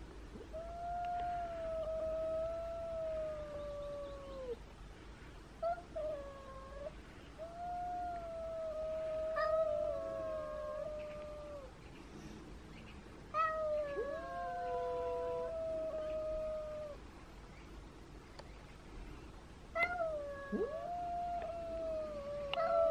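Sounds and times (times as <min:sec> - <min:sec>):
cat yowling: 0:05.6 - 0:11.7, 0:13.4 - 0:17.0, 0:19.8 - 0:22.9.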